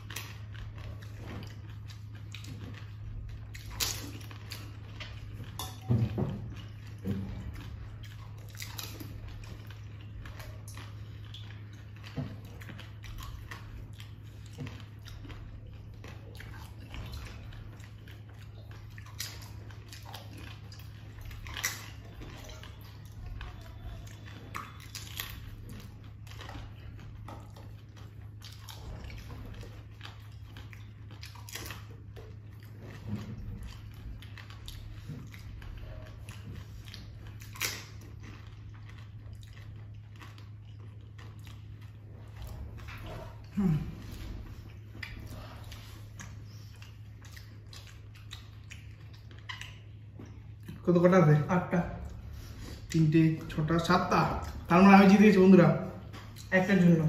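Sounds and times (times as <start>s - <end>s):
people crunching and chewing: 0.0s - 57.0s
steady low hum: 0.0s - 57.0s.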